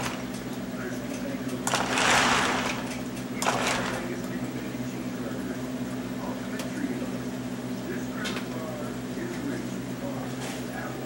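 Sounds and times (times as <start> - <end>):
steady electric hum: 0.0 - 11.0
toy train cars rolling: 1.6 - 4.1.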